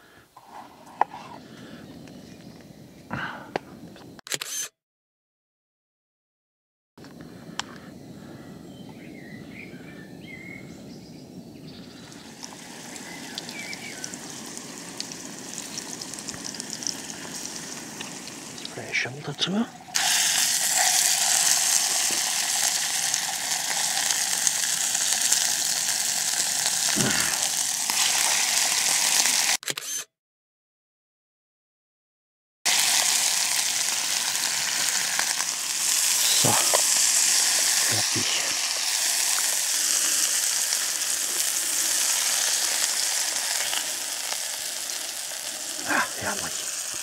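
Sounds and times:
meat sizzling in a frying pan: 12.0 - 29.6, 32.7 - 47.0.

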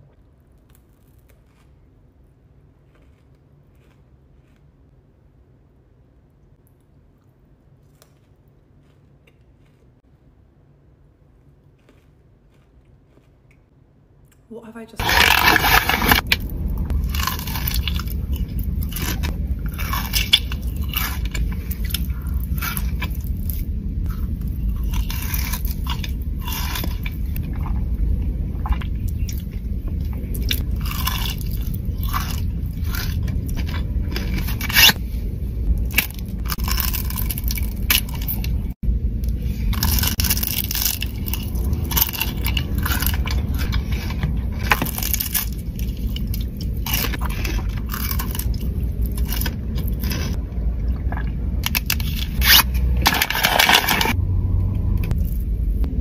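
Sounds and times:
steady low hum: 0.0 - 56.0
crisp chocolate crunching: 15.0 - 27.8, 28.6 - 35.0, 35.8 - 38.7, 39.7 - 50.4, 51.6 - 54.2.

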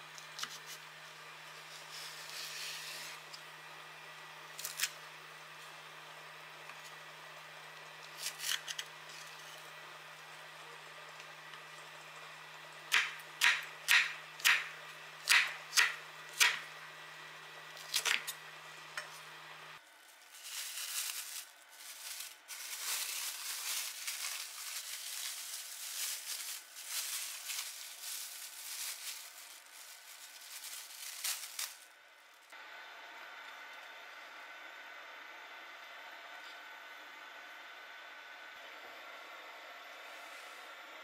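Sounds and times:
knife chopping on wooden board: 12.9 - 14.7, 15.3 - 16.6
plastic bag rustling: 19.8 - 32.4.

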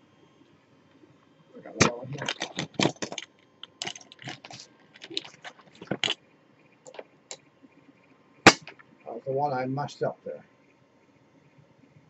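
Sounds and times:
wires and connectors clicking: 1.6 - 6.2, 6.9 - 7.5.

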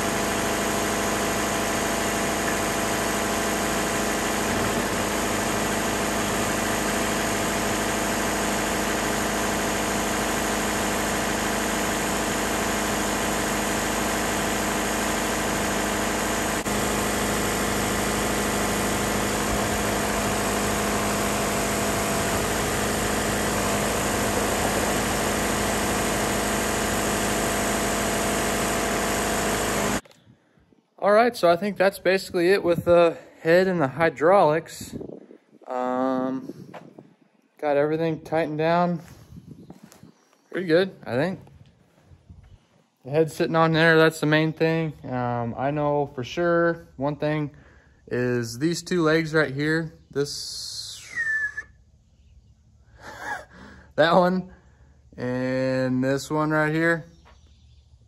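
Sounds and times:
sawmill engine idling: 0.0 - 30.1.

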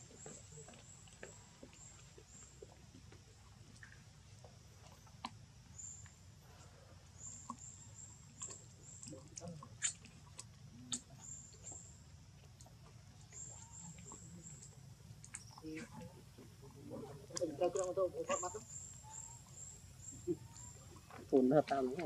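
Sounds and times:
faint high-pitched chirping: 13.2 - 16.2, 16.8 - 21.9.

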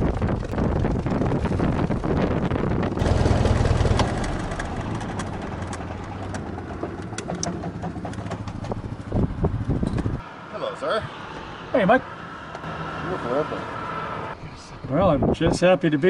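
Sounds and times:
aircraft engine running: 0.0 - 14.4.

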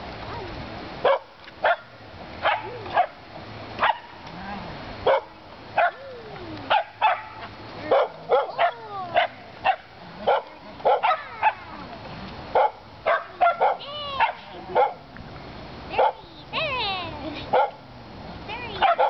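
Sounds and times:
dog barking: 1.0 - 3.2, 3.8 - 4.2, 5.0 - 6.0, 6.7 - 11.6, 12.5 - 15.0, 16.0 - 16.2, 17.5 - 17.8, 18.8 - 19.0.

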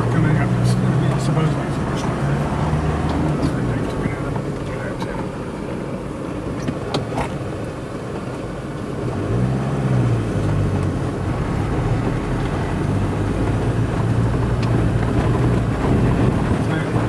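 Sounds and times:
vehicle engine driving: 0.0 - 17.0
knocks and rattles: 11.8 - 17.0.

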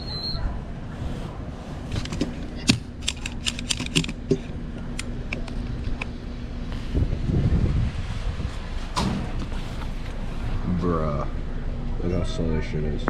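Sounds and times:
fuel pump humming: 0.0 - 7.5
fuel nozzle plastic clicks: 2.0 - 6.1.

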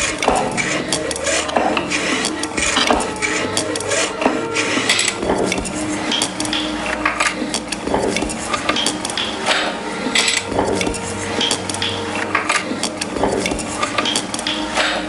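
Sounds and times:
steady held tones: 0.0 - 15.0.

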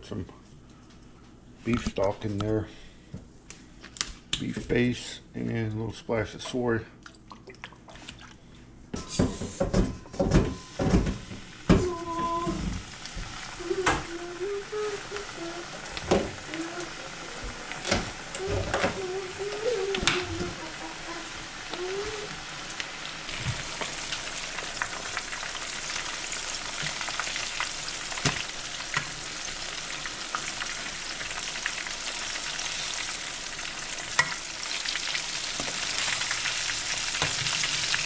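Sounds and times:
fish frying in hot oil: 10.7 - 38.0.

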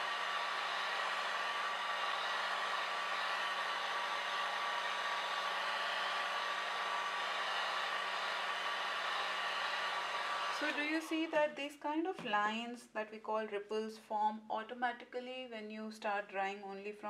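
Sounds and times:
hair dryer running: 0.0 - 11.4.

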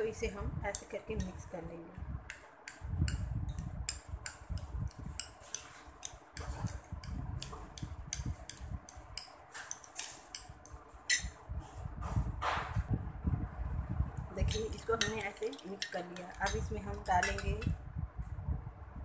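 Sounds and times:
spoon clinking glass bowl: 5.1 - 6.8, 14.5 - 17.6.

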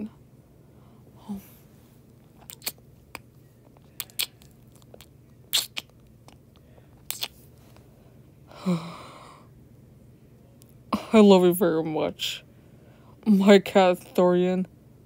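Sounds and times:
lip smacks: 2.4 - 7.4.

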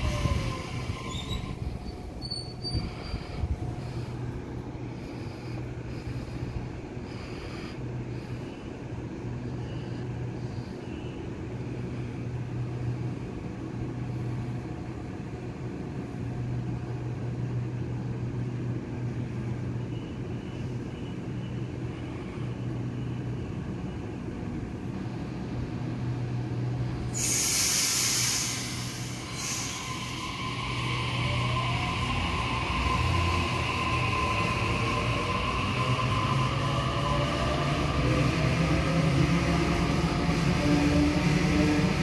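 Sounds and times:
low train equipment hum: 0.0 - 42.0
loud air hiss: 27.1 - 31.2.

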